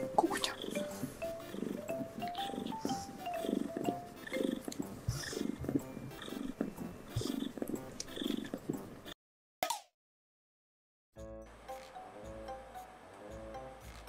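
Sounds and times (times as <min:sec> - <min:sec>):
light background music: 0:00.0 - 0:09.1, 0:11.2 - 0:14.0
cat purring: 0:00.0 - 0:09.2.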